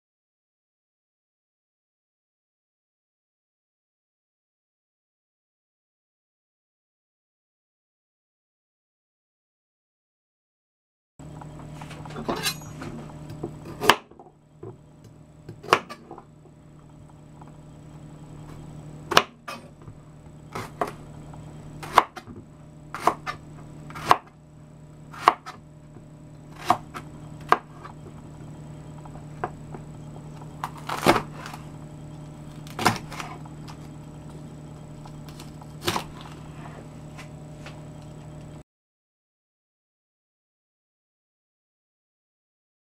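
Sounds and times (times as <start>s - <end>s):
steady low hum: 11.2s - 38.6s.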